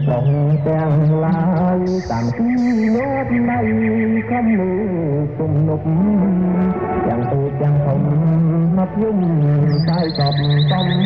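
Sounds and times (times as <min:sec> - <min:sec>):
short high hissing sounds: 0:02.0 - 0:03.0.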